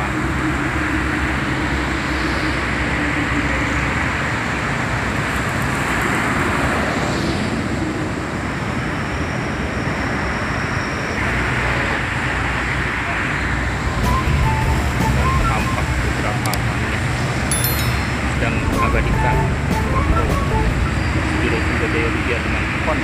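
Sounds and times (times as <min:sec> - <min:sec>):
street traffic noise: 0:00.0 - 0:23.0
coach diesel engine running: 0:13.2 - 0:23.0.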